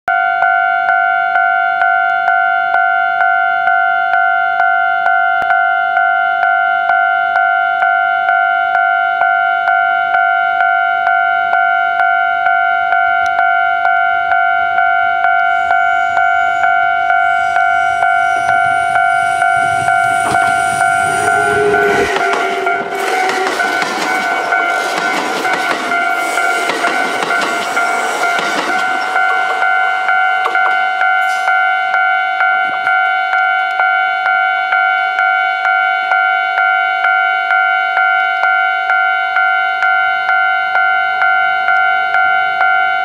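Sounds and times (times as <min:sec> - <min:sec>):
level crossing bell ringing: 0:00.1 - 0:43.0
electric train rumble: 0:13.3 - 0:34.0.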